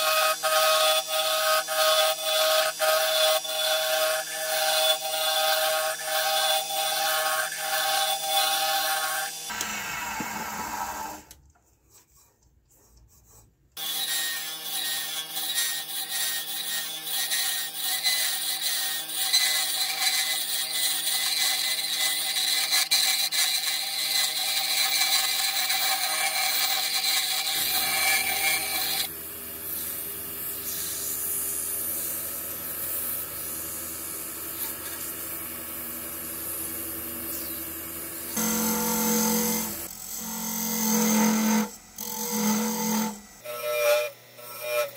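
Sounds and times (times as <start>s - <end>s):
wood lathe motor tone: 0.0s - 11.3s, 13.8s - 29.1s, 37.3s - 44.9s
chisel scraping wood: 18.7s - 29.1s, 38.4s - 44.9s.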